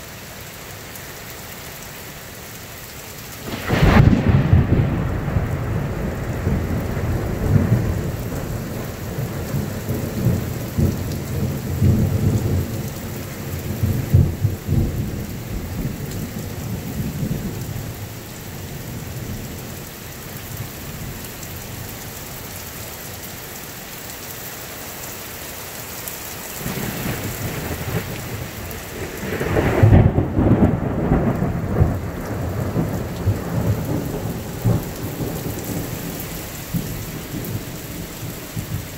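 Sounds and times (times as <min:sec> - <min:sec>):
heavy rain: 0:00.0 - 0:38.9
thunder rumbling: 0:03.4 - 0:18.1, 0:26.6 - 0:38.9
sharp thunderclap: 0:03.5 - 0:12.7, 0:26.6 - 0:38.8.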